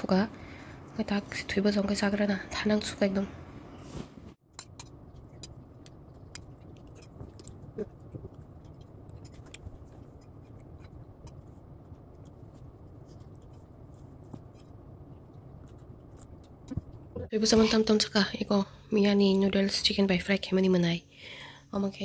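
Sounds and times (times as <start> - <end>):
chewing: 4.8 - 17.2.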